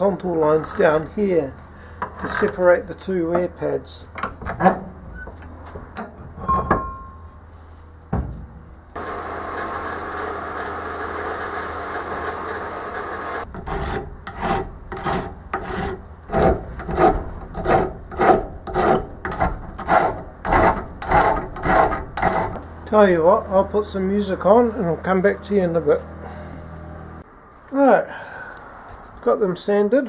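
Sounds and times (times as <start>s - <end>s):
distant bandsaw cutting: 9.0s - 27.2s
hand file rasping on metal: 13.5s - 22.7s.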